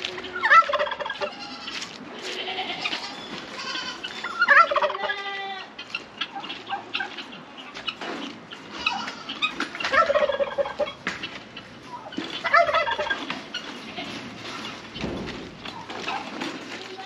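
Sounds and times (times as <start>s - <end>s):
turkey gobbling: 0.1s - 16.9s.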